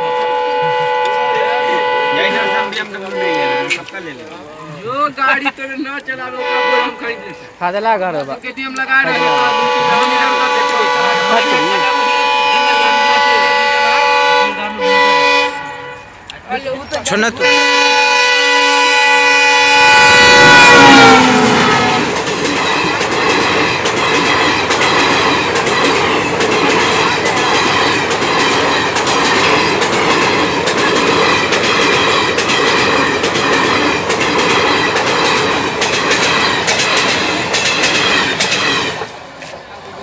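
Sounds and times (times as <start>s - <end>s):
locomotive horn: 0.0s - 4.0s, 6.4s - 7.6s, 9.0s - 16.3s, 17.3s - 22.2s
train wheels rushing on rails: 0.0s - 4.3s, 5.1s - 40.0s.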